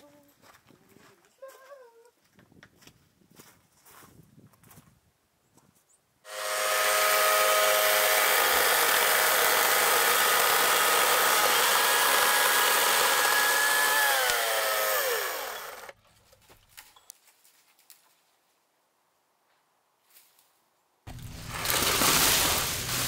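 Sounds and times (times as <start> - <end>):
electric chainsaw cutting wood: 6.3 - 16.0, 21.1 - 23.0.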